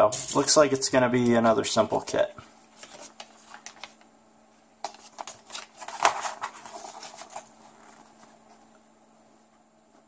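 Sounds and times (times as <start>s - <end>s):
glossy paper rustling and crackling: 2.7s - 4.1s, 4.8s - 8.8s.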